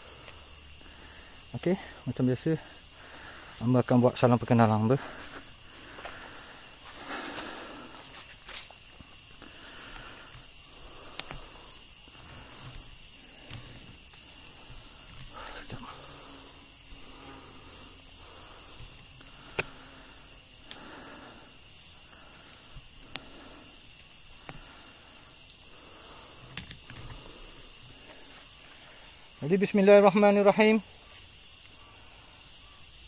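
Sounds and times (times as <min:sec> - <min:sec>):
night insects chorus: 0:00.0 - 0:33.0.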